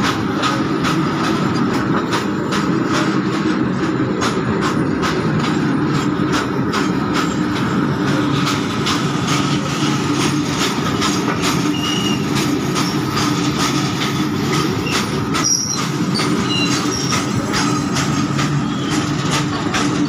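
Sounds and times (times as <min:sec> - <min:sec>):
rail clacks: 0:00.0 - 0:20.0
steel wheels rumbling on rails: 0:00.0 - 0:20.0
high-pitched wheel squeals: 0:11.6 - 0:13.1, 0:14.8 - 0:17.3.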